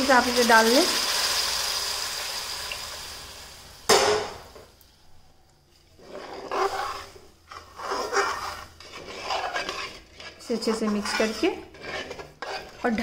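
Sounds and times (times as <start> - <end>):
water sizzling in hot oil: 0.0 - 3.9
metal spoon scraping pan: 6.0 - 13.0.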